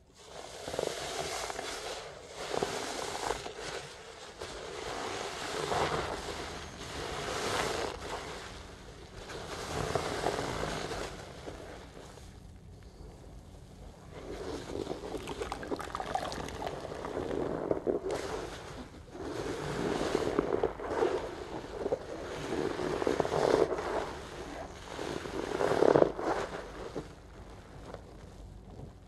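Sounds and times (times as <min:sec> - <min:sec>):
sponge squelching in water: 0:14.2 - 0:27.2.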